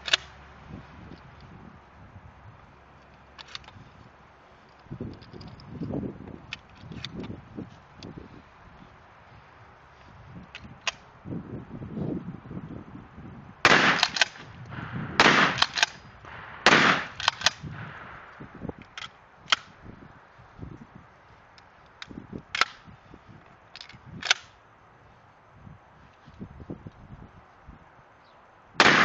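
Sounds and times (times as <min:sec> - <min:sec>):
sharp clicks: 0:00.0 - 0:00.4, 0:13.7 - 0:19.8, 0:21.5 - 0:24.6
shotgun blasts: 0:13.6 - 0:18.3, 0:28.8 - 0:29.0.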